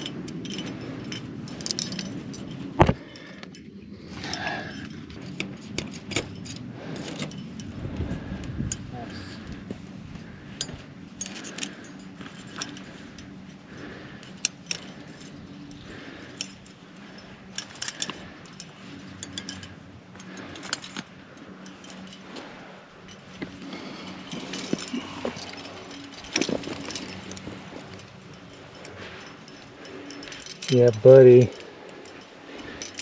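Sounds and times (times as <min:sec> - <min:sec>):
metal climbing gear clinking: 0:00.0 - 0:33.0.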